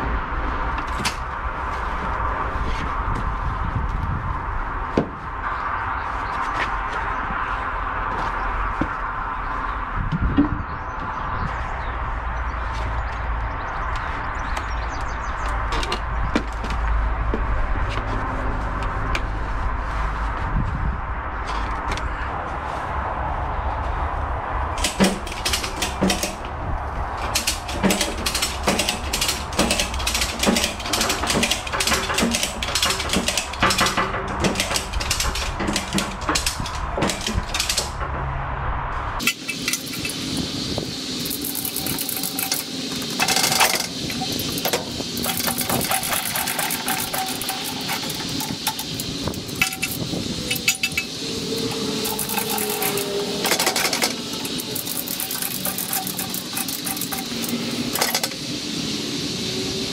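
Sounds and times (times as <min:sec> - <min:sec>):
steady low rumble: 0:00.0 - 0:59.9
heavy metal parts clanking: 0:24.8 - 0:26.6, 0:27.2 - 0:38.4, 0:39.2 - 0:58.4.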